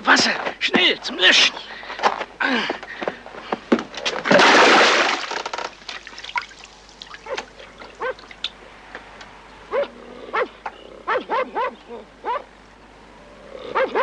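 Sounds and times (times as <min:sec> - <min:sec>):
dog barking and yelping: 0:07.2 - 0:08.4, 0:09.7 - 0:12.5, 0:13.7 - 0:14.0.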